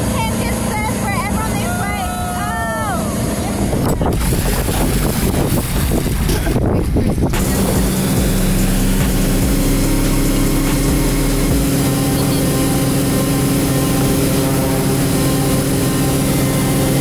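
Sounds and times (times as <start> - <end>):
boat engine droning: 0.0 - 17.0
water rushing: 0.0 - 17.0
wind: 0.0 - 17.0
deep low rumble: 2.7 - 13.9.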